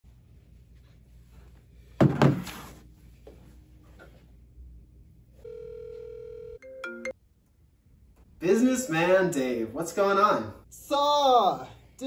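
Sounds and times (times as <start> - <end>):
phone ringing tone beep: 5.4 - 7.1.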